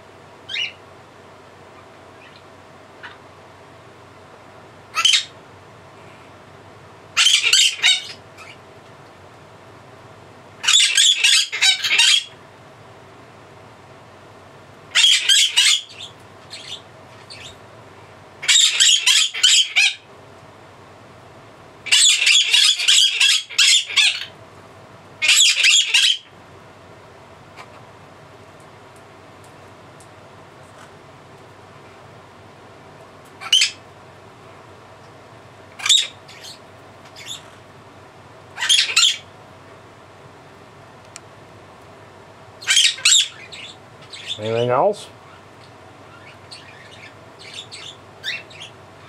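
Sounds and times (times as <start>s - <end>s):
parrot shrieking: 0.5s - 0.8s, 4.9s - 5.4s, 7.2s - 8.6s, 10.6s - 12.4s, 14.9s - 17.6s, 18.4s - 20.1s, 21.8s - 24.3s, 25.2s - 26.3s, 33.4s - 33.8s, 35.8s - 37.4s, 38.6s - 39.3s, 42.6s - 44.4s, 46.1s - 48.8s.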